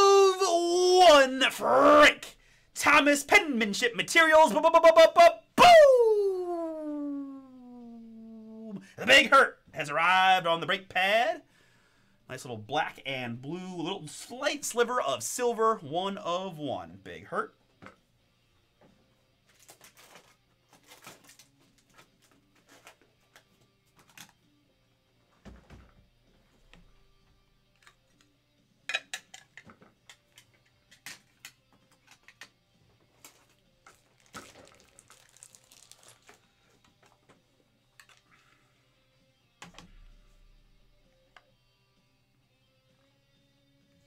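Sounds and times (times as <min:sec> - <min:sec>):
small items clicking and rustling: 0:19.5 - 0:24.4, 0:29.0 - 0:38.3.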